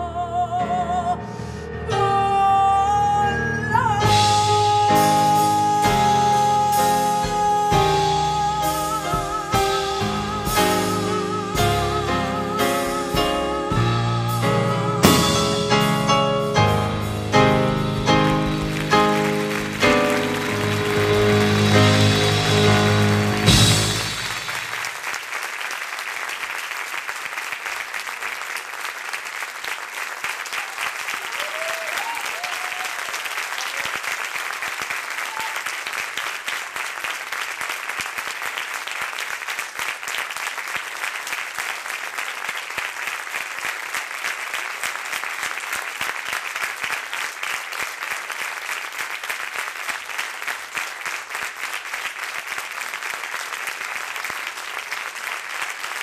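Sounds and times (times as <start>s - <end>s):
audience applauding: 15.0s - 56.0s.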